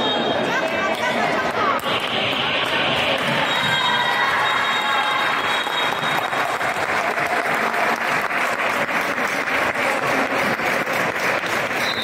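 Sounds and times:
rhythmic hand-clapping applause: 0:00.6 - 0:12.0.

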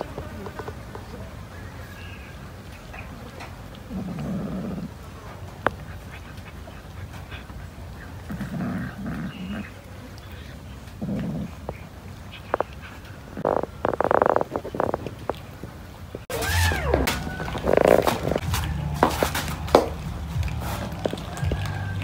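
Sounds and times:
cat growling low: 0:03.7 - 0:15.4, 0:16.3 - 0:18.4.

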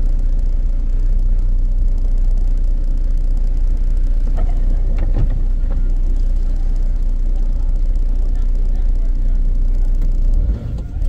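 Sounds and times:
engine rumbling inside cabin: 0:00.0 - 0:11.0.

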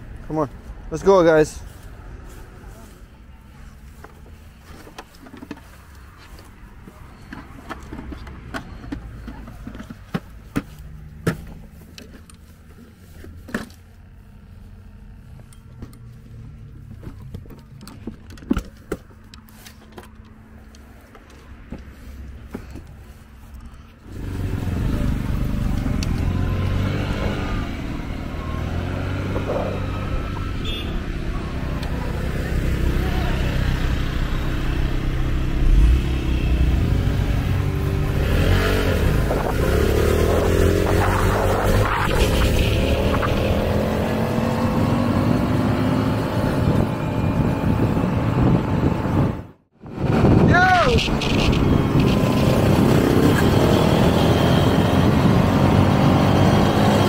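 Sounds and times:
moped engines running: 0:00.0 - 0:49.2, 0:50.9 - 0:57.0
wind rumbling on microphone: 0:24.1 - 0:32.8, 0:33.6 - 0:56.6.

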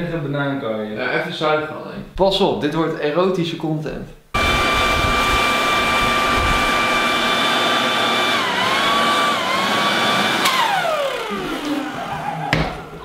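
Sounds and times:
leaf vacuum whining: 0:04.4 - 0:13.0.

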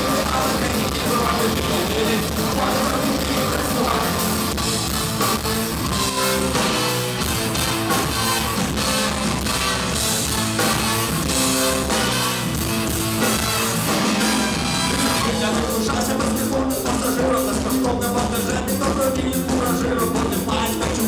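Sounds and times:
drum kit: 0:00.0 - 0:21.0
electric guitar: 0:00.0 - 0:21.0
trumpet and trombone: 0:06.0 - 0:16.0.

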